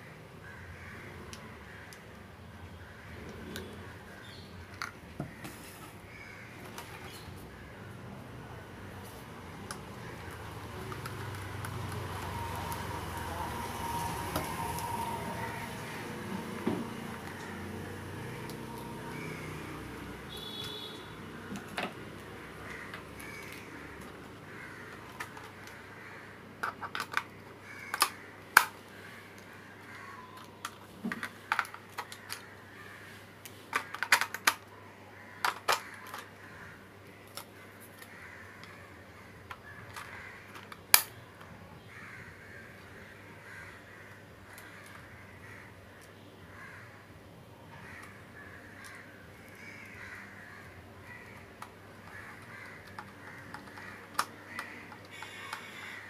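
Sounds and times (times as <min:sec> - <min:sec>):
plastic clicks and knocks: 0:26.6 - 0:27.3, 0:33.7 - 0:34.7, 0:35.4 - 0:36.3, 0:51.3 - 0:55.7.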